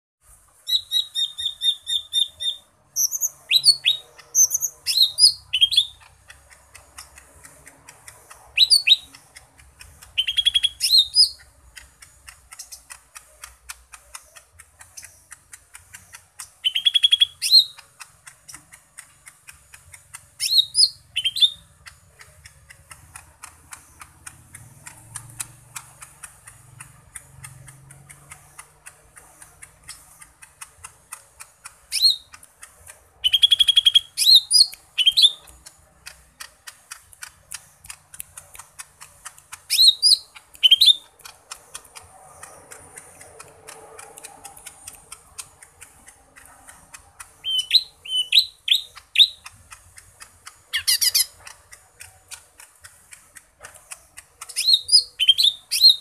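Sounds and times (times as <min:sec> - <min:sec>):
buzzy bird rattle: 0:00.5 - 0:56.0
bird singing whistled notes: 0:00.6 - 0:06.1, 0:08.6 - 0:09.2, 0:10.2 - 0:11.5, 0:16.6 - 0:17.8, 0:20.4 - 0:21.7, 0:31.9 - 0:32.4, 0:33.2 - 0:35.5, 0:39.7 - 0:41.1, 0:47.4 - 0:49.5, 0:50.7 - 0:51.3, 0:54.4 - 0:56.0
faint rapid ticking: 0:02.3 - 0:56.0.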